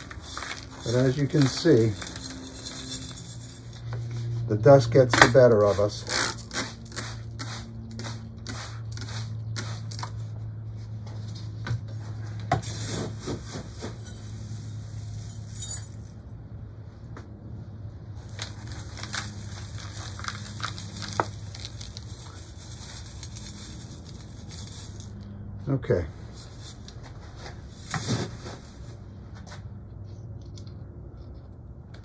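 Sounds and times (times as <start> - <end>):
gritty soil trickling and rattling: 0.0 - 3.8, 18.2 - 25.2
small clicks and scrapes: 30.0 - 31.6.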